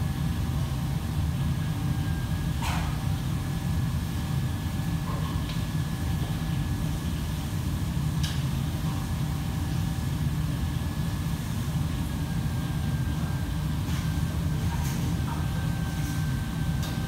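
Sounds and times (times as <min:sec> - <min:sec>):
ventilation fans rumbling: 0:00.0 - 0:17.0.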